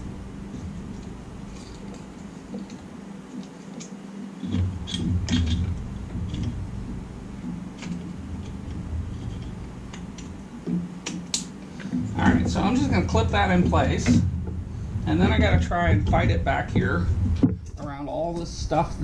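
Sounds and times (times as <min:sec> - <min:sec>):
knocking and rustling: 0:00.0 - 0:18.0
steady low hum: 0:00.0 - 0:19.0
clicks and rattles of parts: 0:00.9 - 0:06.6.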